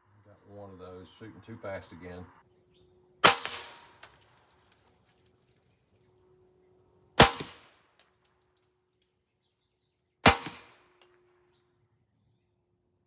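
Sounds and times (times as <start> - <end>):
suppressed rifle shots: 3.2 - 4.0, 7.2 - 7.7, 10.2 - 10.8.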